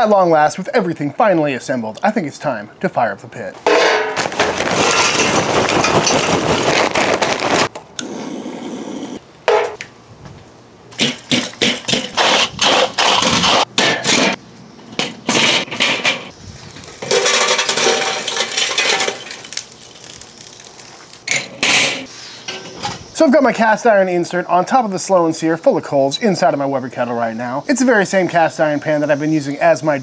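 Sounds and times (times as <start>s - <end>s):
charcoal clattering into metal: 3.6s - 7.7s, 15.2s - 23.0s
lit coals tumbling and crackling: 4.0s - 7.8s, 15.0s - 23.2s.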